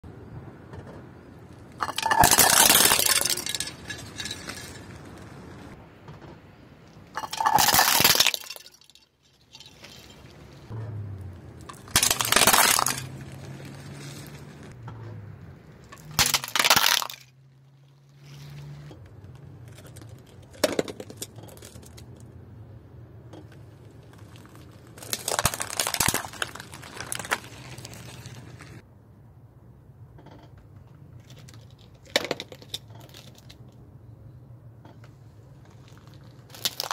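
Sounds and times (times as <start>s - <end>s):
car tyre crushing dishes: 0.7s - 11.0s, 11.6s - 22.2s, 23.3s - 28.8s, 34.8s - 36.9s.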